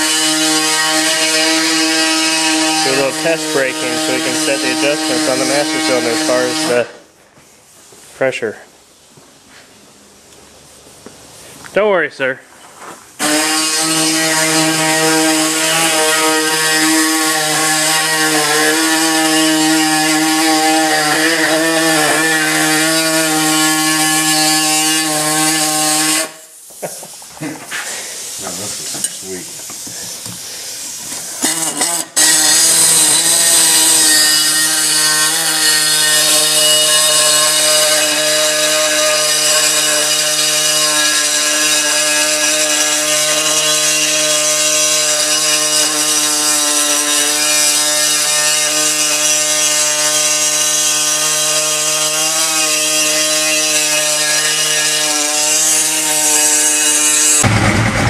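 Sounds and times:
power tool whining: 0.0 - 7.0, 13.2 - 26.4, 29.7 - 58.0.

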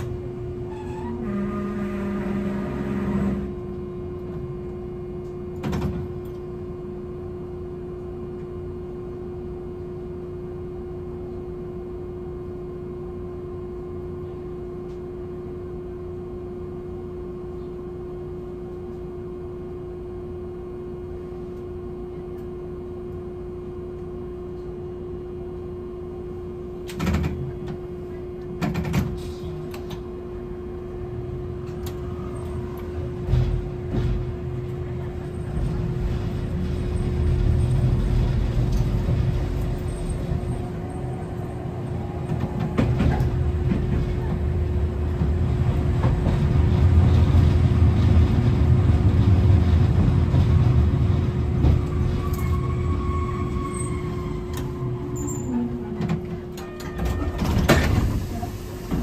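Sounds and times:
tram equipment hum and tone: 0.0 - 59.0
clunks: 55.4 - 59.0.

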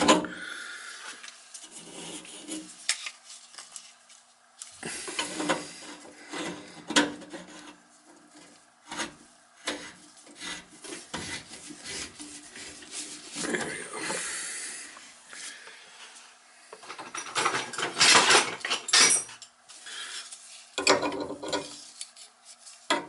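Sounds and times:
plastic pipe rubbing and scraping: 1.2 - 3.8, 4.8 - 14.2, 20.3 - 23.0.

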